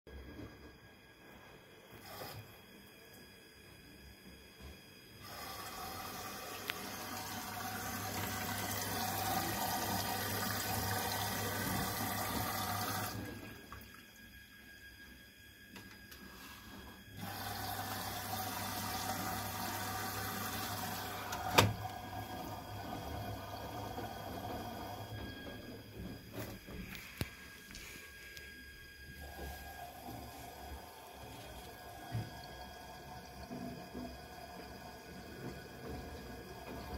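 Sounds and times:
water rushing into washer: 2.0 - 2.5, 5.2 - 14.3, 16.0 - 27.9, 29.1 - 36.9.

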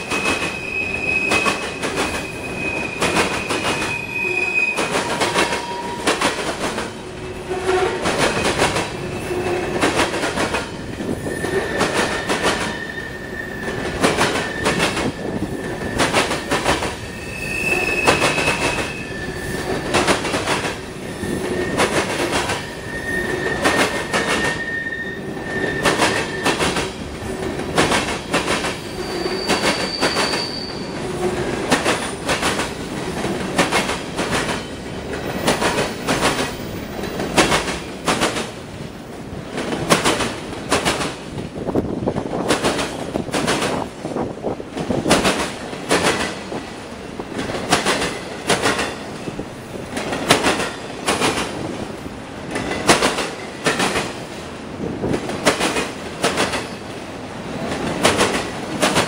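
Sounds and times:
high wheel squeals: 0.1 - 6.3, 11.2 - 20.0, 20.9 - 26.8, 28.7 - 31.2
train wheels clanking over rail joints: 4.7 - 12.9, 25.4 - 38.6, 39.5 - 41.5, 44.7 - 51.7, 52.4 - 54.2.

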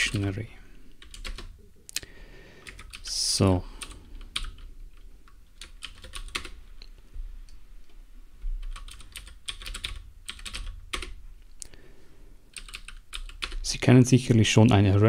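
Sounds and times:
computer keyboard typing: 0.0 - 0.3, 1.0 - 1.6, 2.6 - 3.2, 3.8 - 6.6, 8.6 - 11.2, 12.5 - 13.7.

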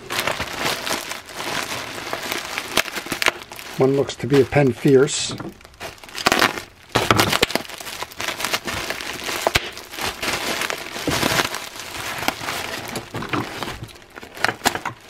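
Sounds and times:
bubble wrap crinkling and crackling: 0.0 - 15.0.

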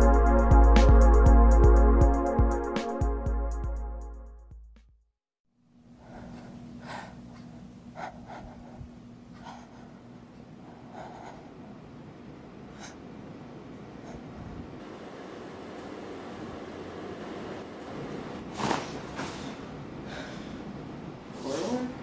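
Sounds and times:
electronic intro music: 0.0 - 4.4
soft scratchy breaths: 5.9 - 11.7, 12.7 - 13.0.

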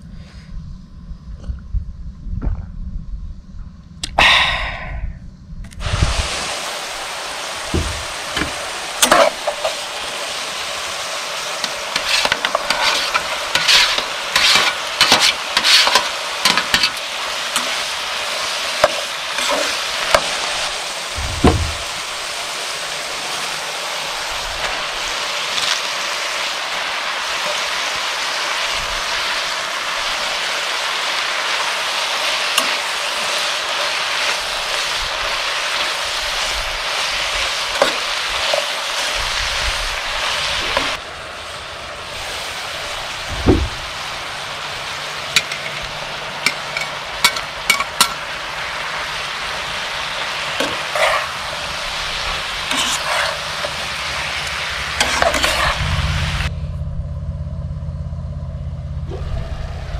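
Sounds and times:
food sizzling in a skillet: 5.8 - 56.5
dull thump: 7.7 - 8.6, 21.2 - 21.9, 43.3 - 43.8
metal spatula scraping a pan: 9.0 - 9.8, 11.6 - 17.8, 18.8 - 20.4, 50.6 - 51.5, 52.6 - 54.0, 55.0 - 56.1.

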